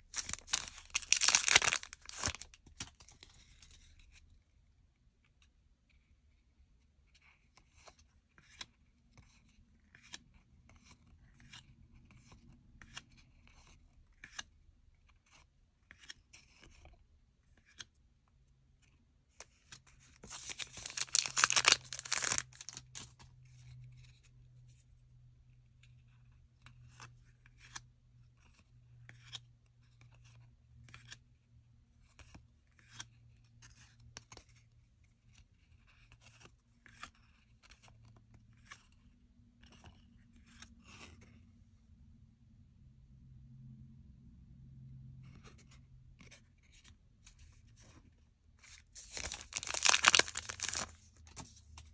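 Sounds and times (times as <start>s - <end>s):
foil pack tearing open: 0.1s - 2.5s, 20.3s - 22.8s, 49.0s - 50.9s.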